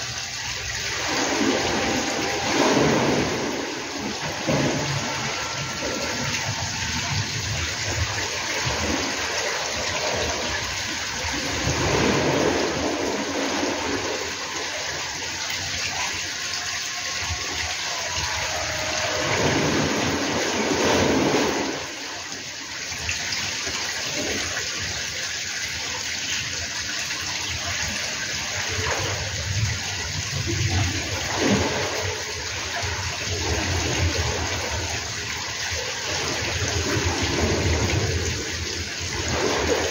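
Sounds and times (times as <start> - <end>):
wind on microphone: 0.0 - 15.3, 18.2 - 22.2, 27.9 - 39.9.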